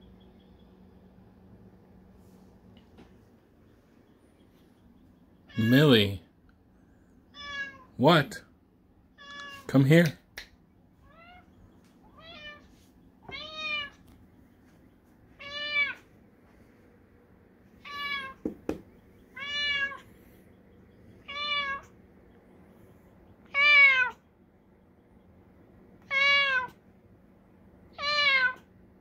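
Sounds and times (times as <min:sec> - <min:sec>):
cat meowing: 0:07.3 - 0:07.9, 0:09.2 - 0:09.7, 0:11.0 - 0:14.0, 0:15.4 - 0:16.1, 0:17.8 - 0:18.4, 0:19.3 - 0:20.1, 0:21.2 - 0:22.0, 0:23.4 - 0:24.2, 0:26.0 - 0:26.8, 0:27.9 - 0:28.7
short knock: 0:18.4 - 0:18.9.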